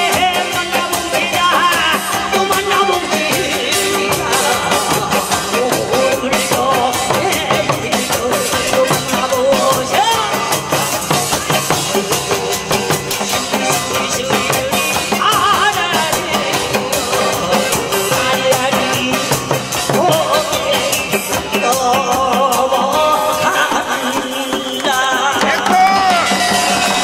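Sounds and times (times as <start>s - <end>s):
amplified backing music: 0.0s - 27.0s.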